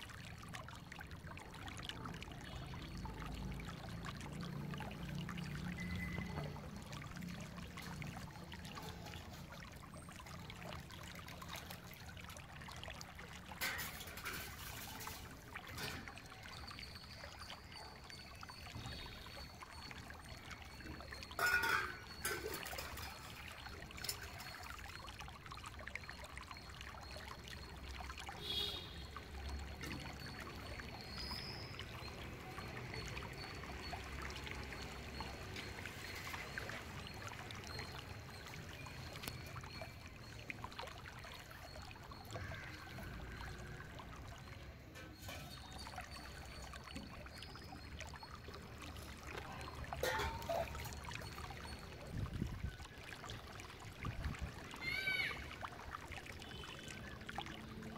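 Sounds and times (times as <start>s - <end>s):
water trickling: 0.0s - 57.9s
steel vessels clinking: 13.4s - 17.4s, 20.8s - 24.9s, 42.0s - 52.2s
steel bowls handled on wet floor: 13.5s - 16.2s, 20.9s - 24.7s, 44.9s - 47.5s, 49.0s - 52.0s.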